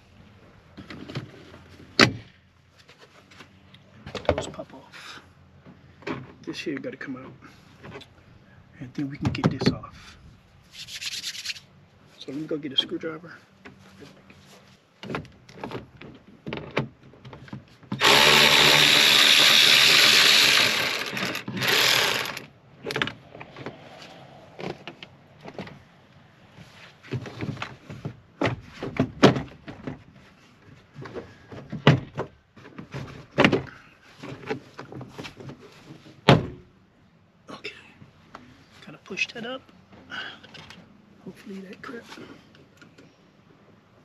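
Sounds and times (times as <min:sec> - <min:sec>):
power drill running: 0:18.0 - 0:22.5.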